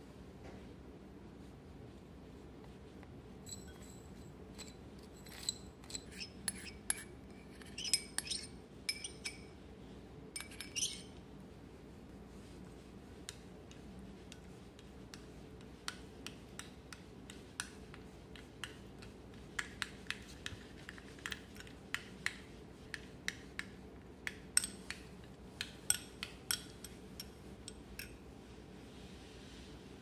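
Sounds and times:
low steady hum: 0.0 - 30.0
utensils clicking against dishes: 25.9 - 28.2.

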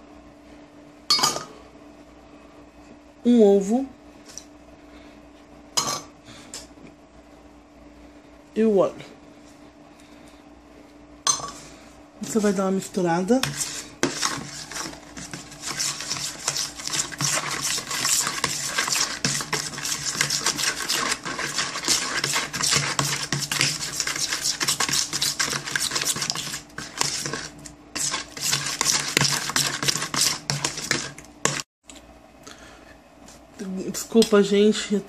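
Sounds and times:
steady low hum: 0.0 - 35.0
utensil scraping plastic bowl: 13.3 - 31.7.

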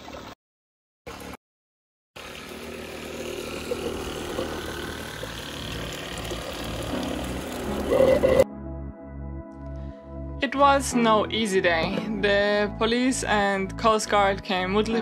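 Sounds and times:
water pump running: 1.1 - 1.4, 2.2 - 8.4.

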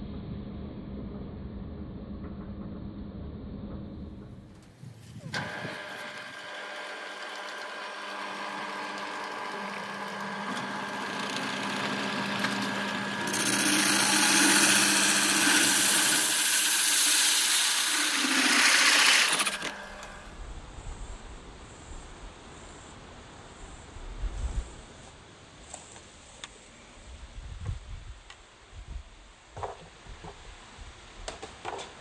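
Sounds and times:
drill press motor hum: 5.3 - 20.3
hole saw hissing into plastic: 13.2 - 20.2.

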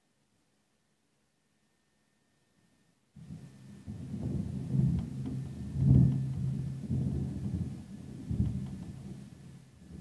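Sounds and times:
thunder rumbling: 3.3 - 10.0.

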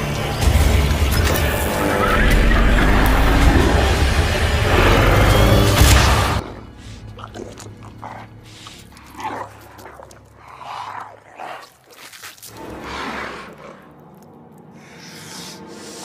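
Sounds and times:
battle crashes and blasts: 5.6 - 6.4.

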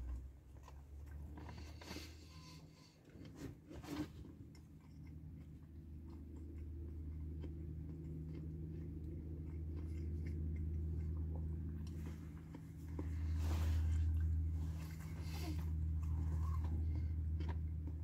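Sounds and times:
steady low hum: 0.0 - 18.0
person chewing: 4.2 - 18.0.

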